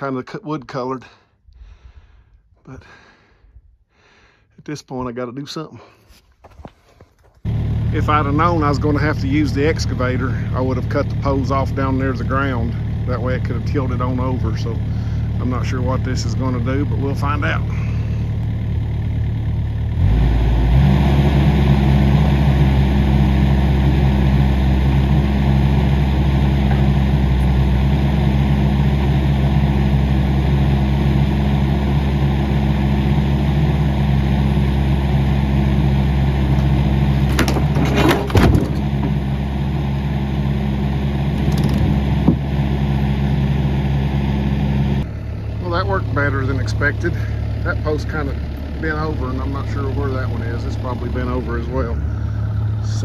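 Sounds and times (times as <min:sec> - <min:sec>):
excavator engine running: 0:06.4 - 0:53.0
wooden post cracking and knocking: 0:37.2 - 0:39.2.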